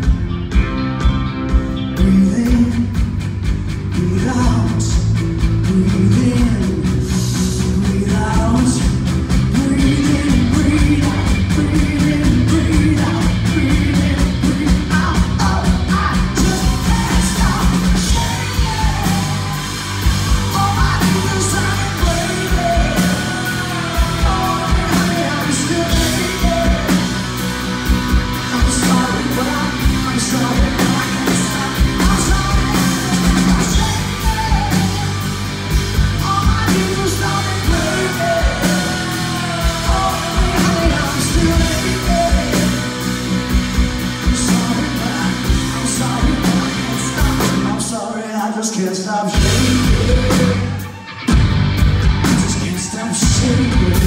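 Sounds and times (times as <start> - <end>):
electric guitars: 0.0 - 48.2, 49.0 - 54.0
woman singing lead: 4.0 - 43.1.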